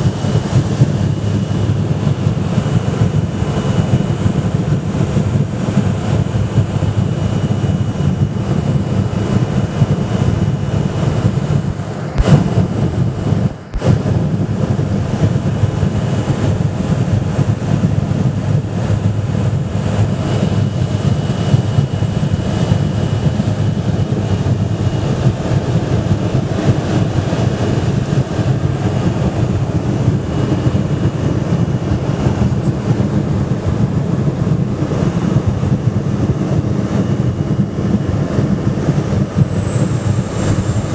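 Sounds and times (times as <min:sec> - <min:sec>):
faint high whine: 0:00.0 - 0:35.3
plane engine and propeller droning: 0:00.0 - 0:40.9.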